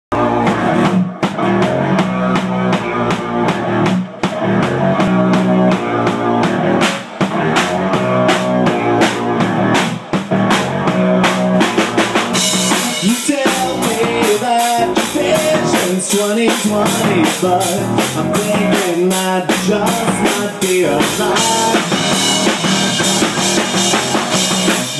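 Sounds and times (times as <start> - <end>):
drum kit beat: 0.1 - 24.9
electric guitar: 0.1 - 24.9
keyboard: 0.1 - 24.9.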